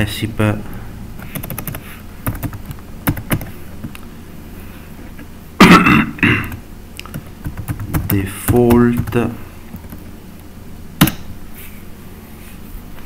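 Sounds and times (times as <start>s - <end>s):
computer keyboard keystrokes: 1.2s - 4.0s, 7.0s - 9.2s
person clearing throat: 5.6s - 6.6s.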